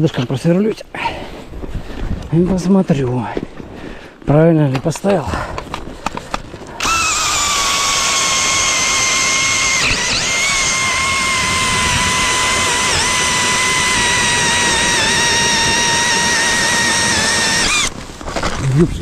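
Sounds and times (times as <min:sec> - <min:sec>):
drill motor whine: 0:06.8 - 0:18.0.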